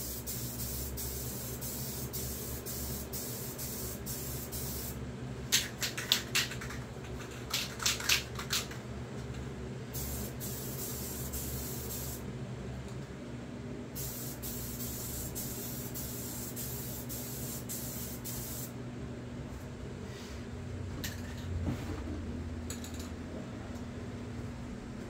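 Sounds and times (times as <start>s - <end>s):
aerosol can spraying: 10.0s - 12.2s, 14.0s - 18.7s.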